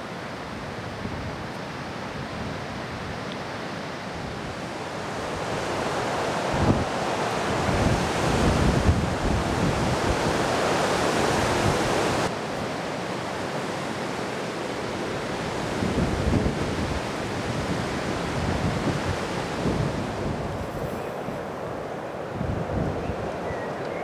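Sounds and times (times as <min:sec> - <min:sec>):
wind buffeting microphone: 0:04.2 - 0:12.3, 0:15.2 - 0:23.8.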